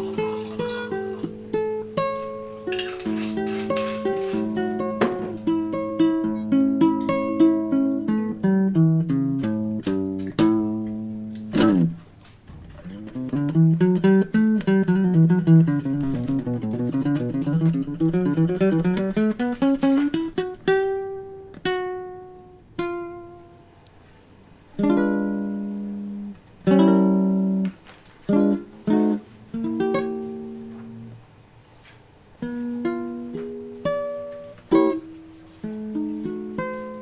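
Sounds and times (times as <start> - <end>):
acoustic guitar playing: 0.0 - 37.0.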